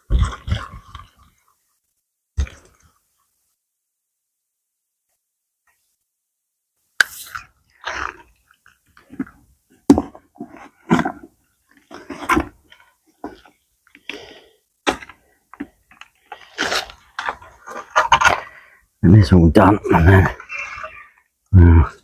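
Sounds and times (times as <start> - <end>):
rustles and scrapes in bucket: 9.0 - 14.3, 15.6 - 18.7.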